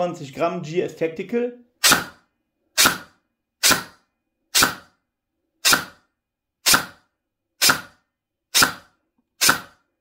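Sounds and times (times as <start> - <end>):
airsoft gun single shots: 1.8 - 2.2, 2.8 - 4.0, 4.6 - 5.0, 5.6 - 6.0, 6.6 - 7.0, 7.6 - 8.0, 8.6 - 9.8.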